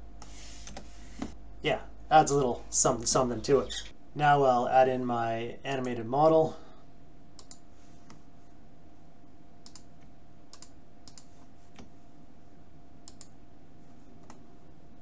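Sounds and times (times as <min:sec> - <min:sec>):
faint hum: 0:00.0 - 0:15.0
computer mouse clicks: 0:07.4 - 0:08.2, 0:09.6 - 0:11.9, 0:13.0 - 0:13.4, 0:14.2 - 0:14.4.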